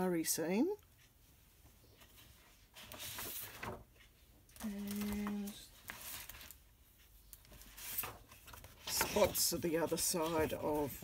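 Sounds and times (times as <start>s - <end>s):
card stock rustling: 4.5s - 6.6s, 7.3s - 11.0s.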